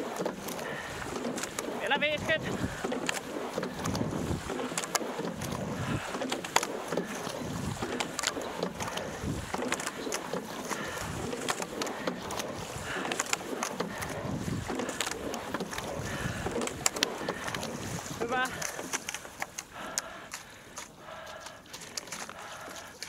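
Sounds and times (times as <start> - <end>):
oar blades in water: 0.0 - 23.0
oars clicking in oarlocks: 0.0 - 23.0
water rushing along hull: 0.0 - 23.0
wind on microphone: 0.6 - 18.7.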